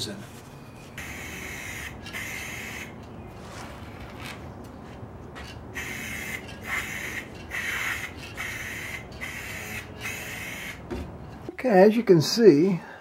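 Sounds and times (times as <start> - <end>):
aerosol spray hissing bursts: 5.8 - 10.8.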